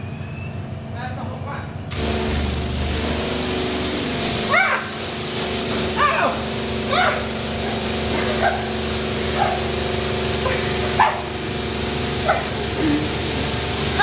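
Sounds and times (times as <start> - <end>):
pressure washer spray hiss: 1.9 - 14.0
pump humming: 1.9 - 14.0
person yelping: 4.5 - 5.0, 6.0 - 7.3.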